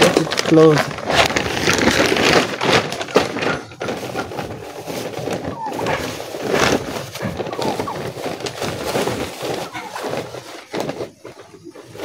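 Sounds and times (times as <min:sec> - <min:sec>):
chickens clucking: 0:02.4 - 0:12.0.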